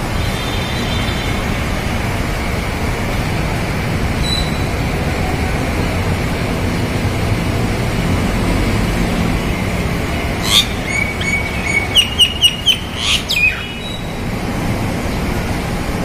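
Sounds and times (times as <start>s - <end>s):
low traffic rumble: 0.0s - 16.0s
myna calling: 10.3s - 14.1s.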